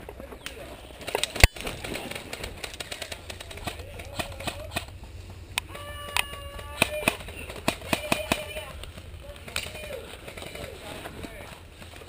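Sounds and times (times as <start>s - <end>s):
airsoft guns firing: 1.0s - 5.0s, 6.1s - 11.6s
person shouting: 5.7s - 7.2s.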